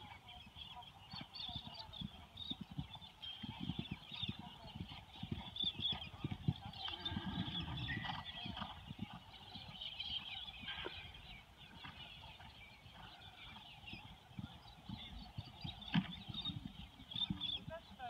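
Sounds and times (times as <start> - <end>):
birds chirping: 0.0 - 18.0
horse hooves thudding on turf: 13.0 - 18.0.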